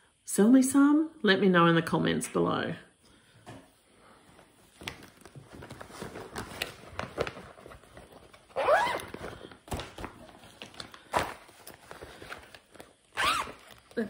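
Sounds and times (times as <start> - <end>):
plastic bag rustling and crinkling: 4.3 - 14.0.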